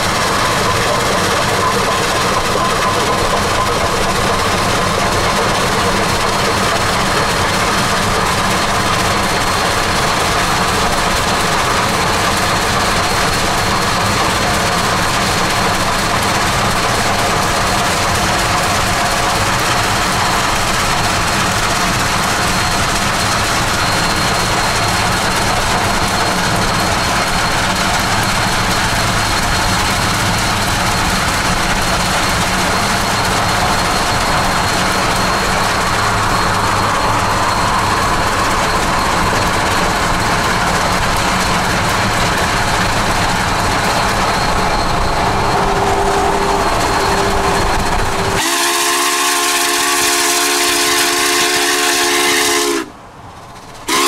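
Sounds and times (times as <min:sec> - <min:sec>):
steam whistle chord: 0:48.2 - 0:53.0.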